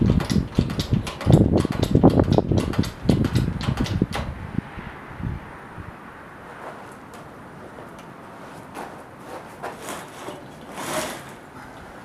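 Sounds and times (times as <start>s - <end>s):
hydraulic hoist pump scraping: 7.8s - 12.0s.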